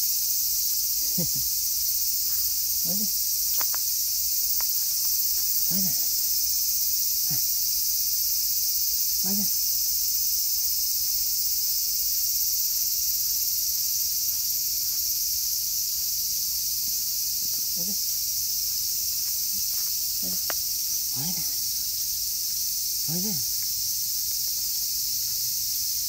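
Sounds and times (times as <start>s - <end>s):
insects chorus: 0.0s - 26.0s
soft voice sounds: 2.8s - 3.2s, 5.6s - 6.2s, 7.2s - 7.5s, 9.2s - 9.6s, 17.6s - 18.0s, 21.1s - 21.6s, 23.0s - 23.5s.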